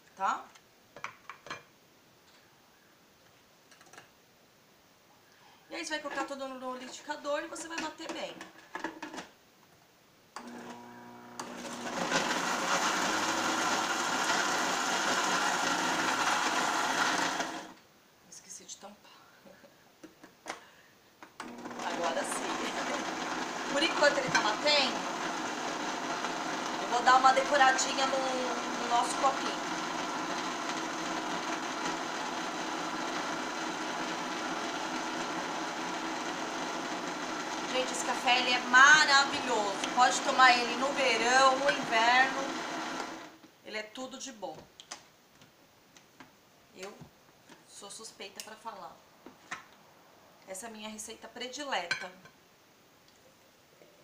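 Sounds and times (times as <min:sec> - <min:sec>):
blender crushing ice: 0:10.4 - 0:17.8, 0:21.4 - 0:43.3.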